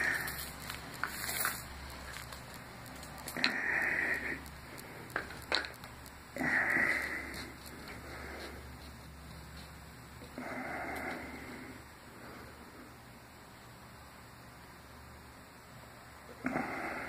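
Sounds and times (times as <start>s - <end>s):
person breathing slowly: 0.0s - 1.5s, 3.2s - 5.5s, 6.3s - 9.0s, 10.3s - 13.1s, 16.4s - 17.0s.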